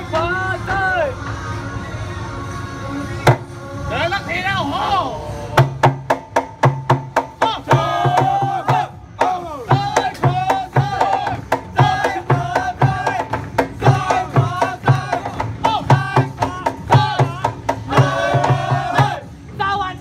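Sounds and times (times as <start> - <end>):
plastic barrel drum beats: 3.2 - 3.5, 5.6 - 19.2
pots and pans struck in rhythm: 5.6 - 19.3
voices singing: 7.4 - 19.4.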